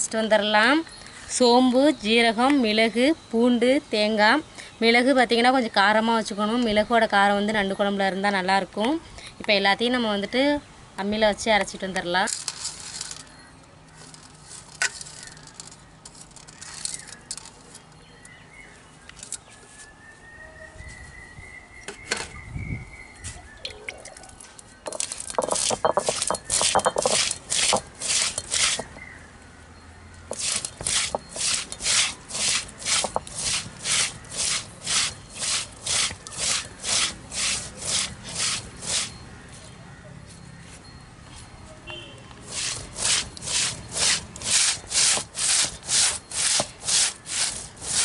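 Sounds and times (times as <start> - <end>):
stone roller crushing spices: 24.8 - 29.1, 30.3 - 39.2, 42.4 - 48.0
spices knocking on stone: 24.9 - 27.9.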